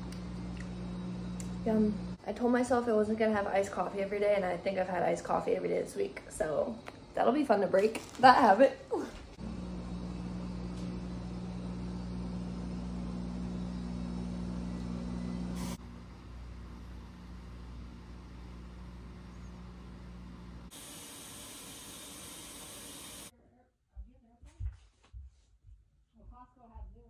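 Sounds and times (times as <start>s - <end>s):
machine hum: 0.0s - 23.3s
bright hiss: 20.7s - 23.3s.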